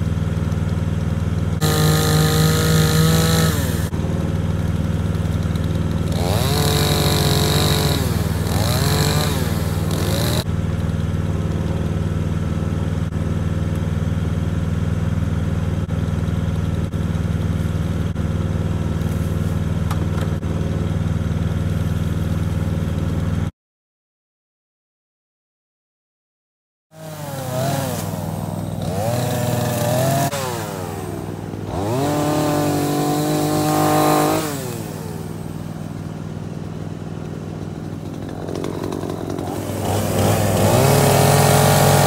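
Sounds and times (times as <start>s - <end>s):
chainsaw engine revving: 1.6s - 10.5s, 27.0s - 42.0s.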